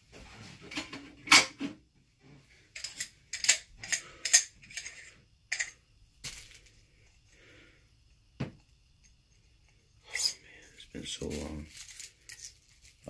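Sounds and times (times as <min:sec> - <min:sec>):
metal clinks and rattles: 0:02.7 - 0:06.7, 0:11.4 - 0:13.0.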